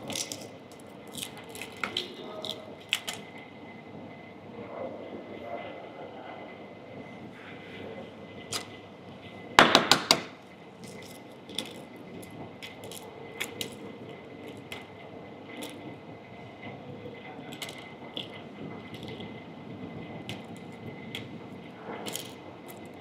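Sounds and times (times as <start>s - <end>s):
egg shell knocking on hard surface: 9.6s - 10.3s.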